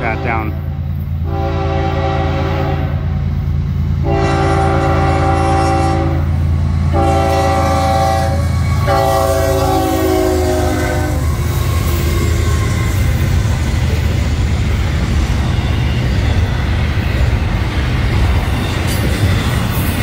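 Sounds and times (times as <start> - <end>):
locomotive air horn blasts: 0.0 - 3.1, 4.0 - 13.0
train wheels rumbling on rails: 0.0 - 20.0.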